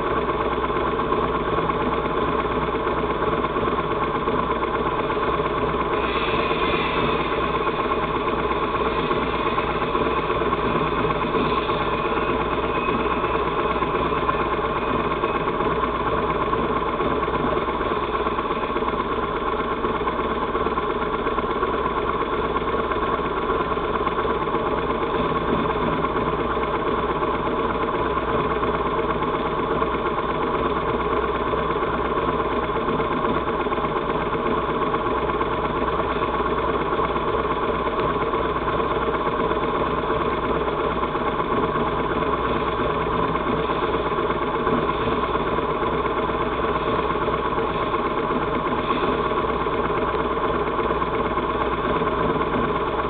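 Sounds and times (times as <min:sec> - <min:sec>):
motorcycle engines idling: 0:00.0 - 0:53.0
faint high whine: 0:04.2 - 0:20.2.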